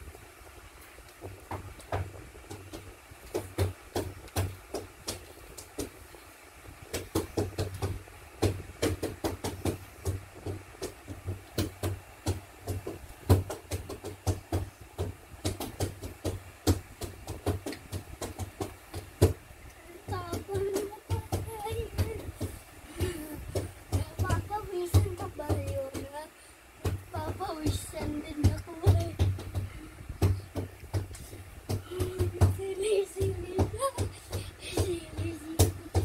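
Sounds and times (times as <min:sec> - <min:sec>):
child beatboxing: 0:16.7 - 0:36.0.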